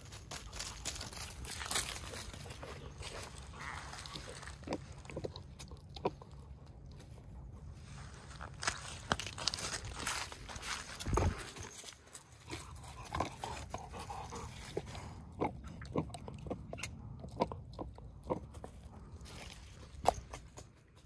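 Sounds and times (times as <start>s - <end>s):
dog chewing rubber ball: 2.2s - 7.6s, 12.4s - 20.7s.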